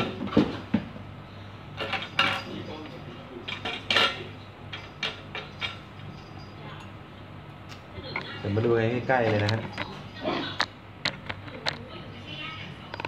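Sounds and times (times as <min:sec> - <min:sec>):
steady low hum: 0:00.0 - 0:13.0
hard parts clattering on glass: 0:01.8 - 0:06.6.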